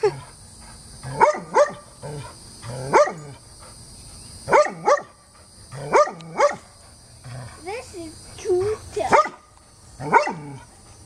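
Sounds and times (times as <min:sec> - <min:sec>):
dog barking: 0:01.2 - 0:01.8, 0:02.9 - 0:03.2, 0:04.5 - 0:05.2, 0:05.9 - 0:06.6, 0:09.1 - 0:09.4, 0:10.0 - 0:10.5.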